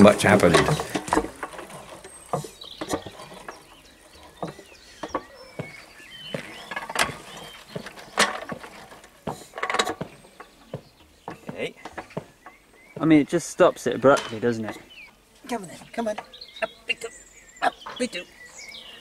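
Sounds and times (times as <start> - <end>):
handling knocks and clicks: 0.0 - 13.2, 14.0 - 14.9
faint bird chirps: 1.8 - 8.2, 10.1 - 19.0.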